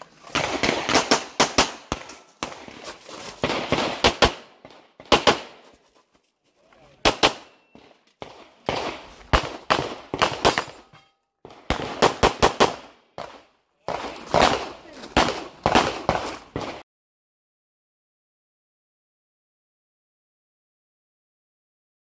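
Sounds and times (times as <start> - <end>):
pistol shots with echo: 0.3 - 2.6, 7.0 - 16.8.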